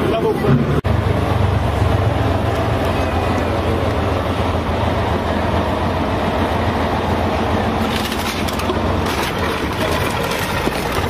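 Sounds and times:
tractor diesel engine running: 0.0 - 11.0
car body crunching under tyres: 7.8 - 11.0.

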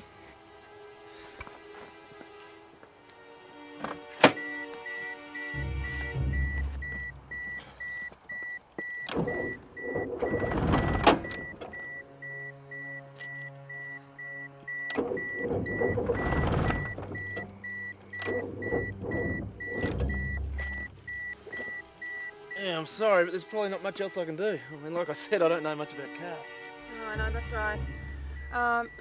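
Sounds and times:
rapid car warning chime: 4.3 - 29.0
car starter cranking engine: 9.0 - 13.0, 13.7 - 22.4.

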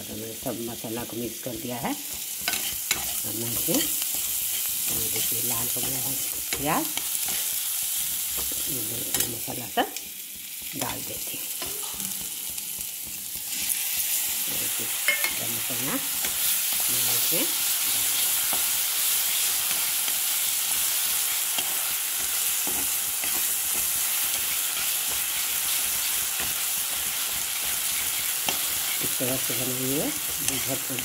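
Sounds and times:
paste sizzling in hot oil: 0.0 - 31.0
spatula stirring: 2.1 - 9.3, 10.0 - 31.0.

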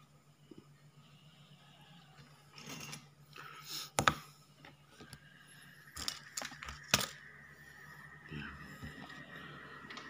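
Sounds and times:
low steady hum: 0.0 - 10.0
tools rustling and scraping: 2.5 - 3.2, 5.8 - 7.2.

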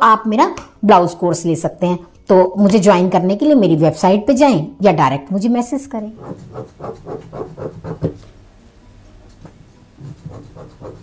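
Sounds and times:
scissors snipping fabric: 6.2 - 8.2.

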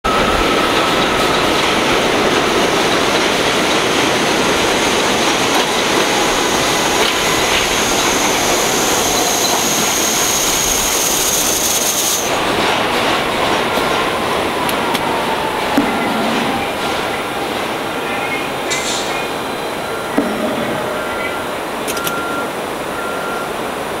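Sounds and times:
subway train wheel and track noise: 0.0 - 24.0
high squeal: 5.4 - 12.3.

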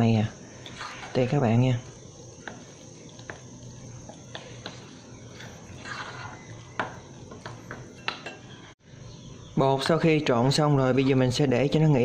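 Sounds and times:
batter sloshing: 0.5 - 8.0.

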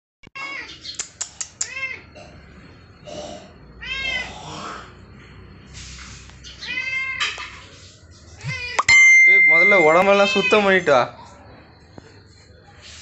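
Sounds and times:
cat meowing: 3.8 - 4.4, 6.6 - 7.3, 8.4 - 8.9, 10.1 - 10.6.

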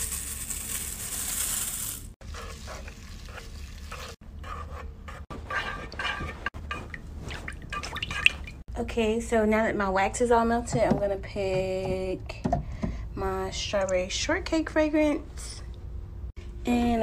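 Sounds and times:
wax flakes pouring: 0.0 - 2.2
wooden stick stirring wax: 2.2 - 7.9.

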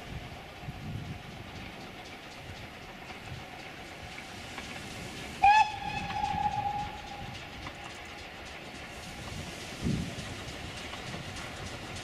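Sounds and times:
faint train running: 0.0 - 12.0
steam locomotive whistle: 5.4 - 7.3.

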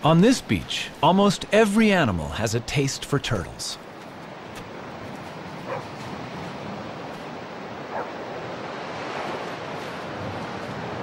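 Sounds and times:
wind: 0.0 - 11.0
surf: 0.1 - 11.0
faint dog barks: 5.6 - 6.0, 7.9 - 8.2.

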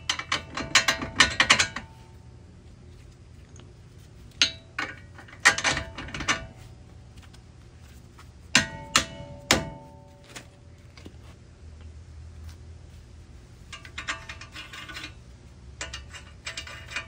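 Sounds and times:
metal tools clanking on steel: 0.0 - 2.2, 4.3 - 6.7, 8.5 - 10.6, 13.7 - 17.0.

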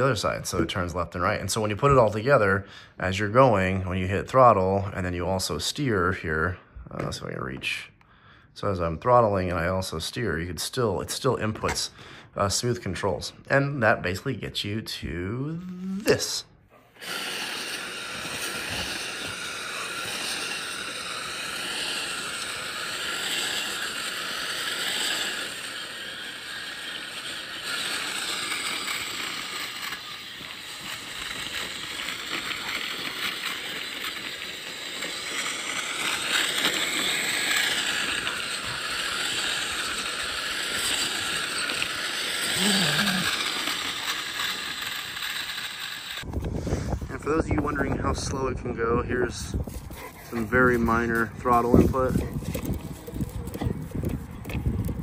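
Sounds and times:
toy vehicle motor whir and track clatter: 15.8 - 46.4, 50.4 - 55.0.

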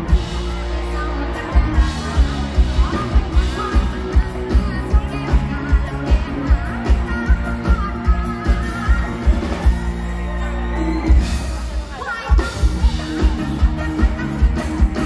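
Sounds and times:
live band playing: 0.0 - 15.0
woman singing into a microphone: 1.0 - 9.6.

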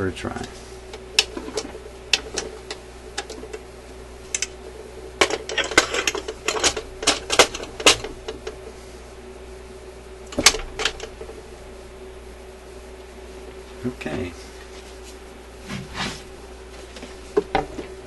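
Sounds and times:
steady hum: 0.0 - 18.0
turntable parts clicking: 0.4 - 8.6, 10.2 - 11.4.

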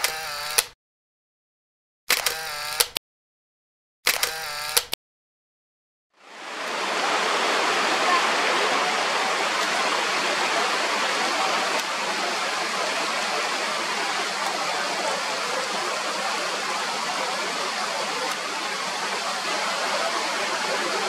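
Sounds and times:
river water rushing: 6.2 - 21.0.

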